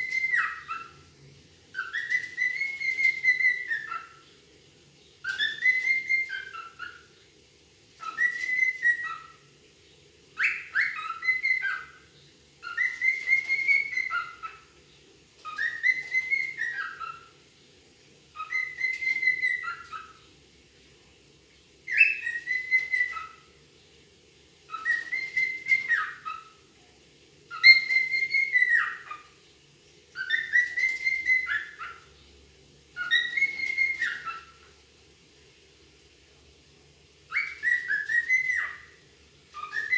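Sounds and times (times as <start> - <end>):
cockatiel whistling: 0.0 - 1.0, 1.7 - 4.2, 5.2 - 7.1, 8.0 - 9.5, 10.4 - 14.7, 15.4 - 17.4, 18.3 - 20.2, 21.9 - 23.5, 24.7 - 26.6, 27.5 - 29.3, 30.1 - 32.1, 33.0 - 34.7, 37.3 - 39.9.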